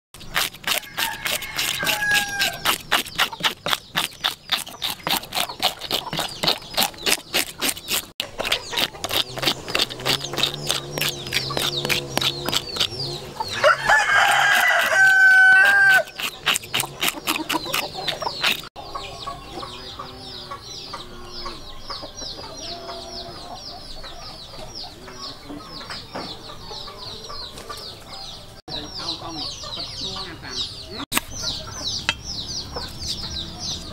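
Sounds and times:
knife scraping fish scales: 0:00.2 - 0:13.1, 0:13.9 - 0:18.7
chickens clucking: 0:00.2 - 0:33.9
rooster crowing: 0:00.8 - 0:02.7, 0:13.4 - 0:16.2.

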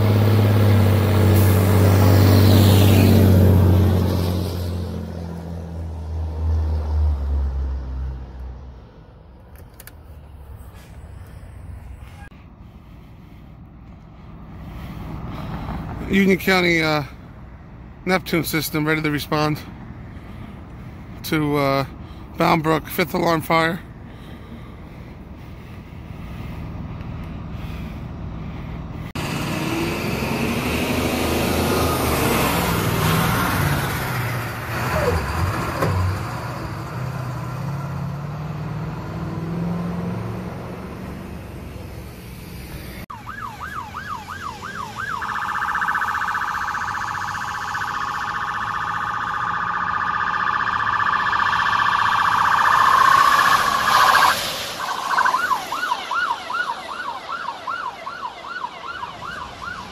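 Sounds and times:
heavy vehicle engines: 0:00.0 - 0:59.9
electronic siren yelping: 0:43.1 - 0:59.9.

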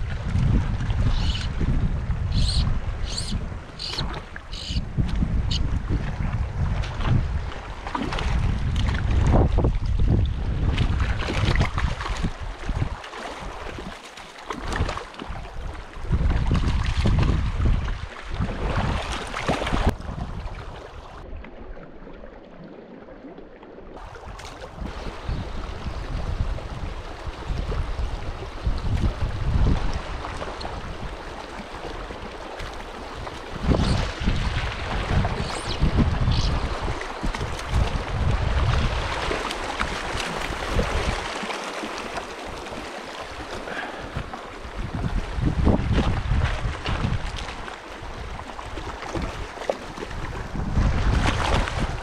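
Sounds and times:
stream running over rocks: 0:00.0 - 0:05.6, 0:27.8 - 0:46.4
wind buffeting microphone: 0:00.0 - 0:13.0, 0:14.6 - 0:21.3, 0:24.0 - 0:31.4, 0:32.0 - 0:41.4, 0:43.4 - 0:52.0.

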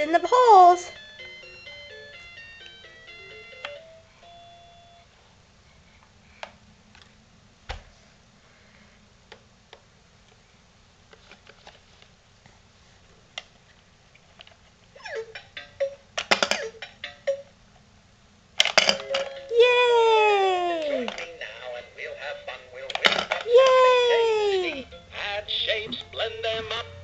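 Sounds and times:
toy beeping tune: 0:00.2 - 0:05.0, 0:15.0 - 0:17.5
plastic toy clicks and knocks: 0:15.4 - 0:17.3, 0:18.6 - 0:19.4.

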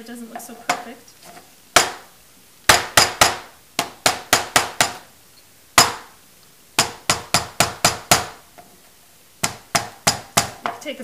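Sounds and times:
hammer knocking on wood: 0:01.8 - 0:02.1, 0:02.7 - 0:05.0, 0:05.8 - 0:06.1, 0:06.8 - 0:08.4, 0:09.4 - 0:10.8.

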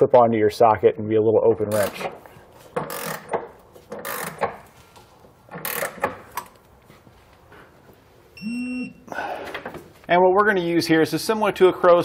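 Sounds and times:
ratchet wrench clicking: 0:02.8 - 0:04.6, 0:05.6 - 0:06.5.

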